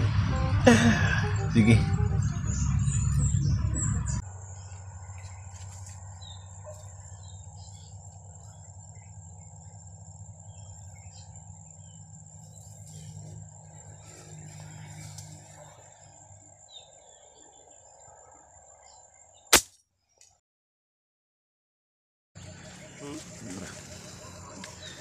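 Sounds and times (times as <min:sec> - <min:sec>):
loud low rumble: 0:00.0 - 0:05.5
birds chirping: 0:00.7 - 0:20.2, 0:22.4 - 0:25.0
insects buzzing: 0:04.2 - 0:19.7, 0:22.4 - 0:25.0.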